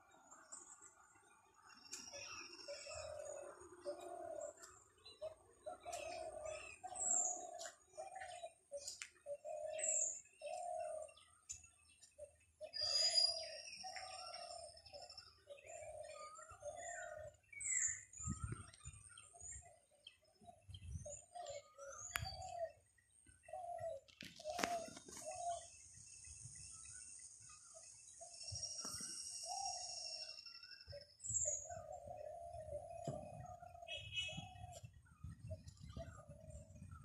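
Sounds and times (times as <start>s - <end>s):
birds chirping and whistling: 0.0s - 37.0s
bird hooting: 2.2s - 11.4s, 12.2s - 18.2s, 20.6s - 22.8s, 23.4s - 25.9s, 27.6s - 37.0s.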